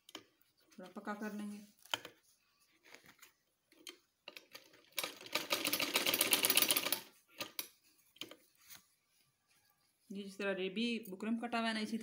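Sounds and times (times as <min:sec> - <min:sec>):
sewing machine stitching: 0:04.4 - 0:07.6.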